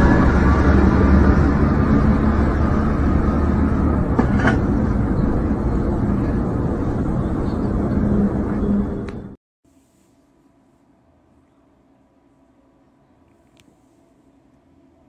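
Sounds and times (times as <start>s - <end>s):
steady outdoor rumbling: 0.0s - 9.4s.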